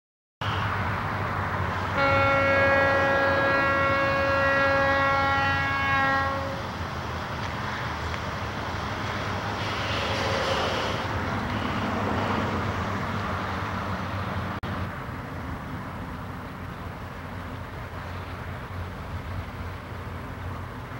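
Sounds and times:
train rumbling: 0:00.4 - 0:20.9
locomotive air horn: 0:01.9 - 0:06.7.

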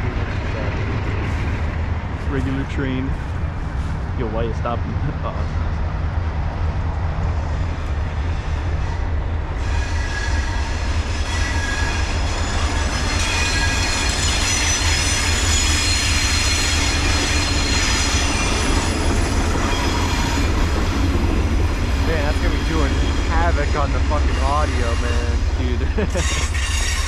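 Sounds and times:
train rumbling past: 0:00.0 - 0:27.0
train wheels squealing on rails: 0:07.3 - 0:27.0.

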